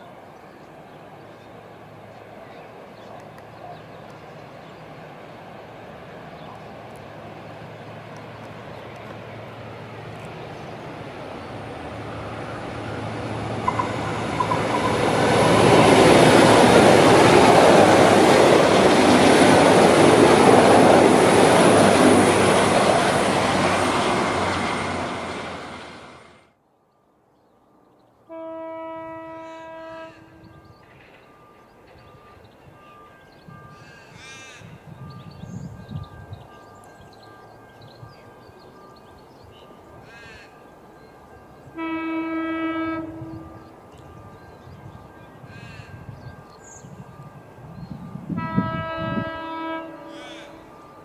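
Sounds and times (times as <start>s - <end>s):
diesel railcar passing: 0.0s - 51.0s
short multi-note tone: 13.6s - 15.5s.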